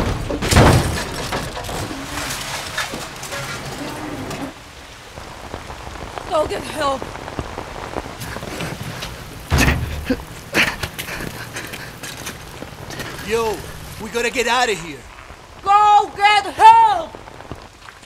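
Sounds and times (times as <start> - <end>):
heavy rain pouring: 0.0 - 18.0
heavy thumps: 8.2 - 14.1.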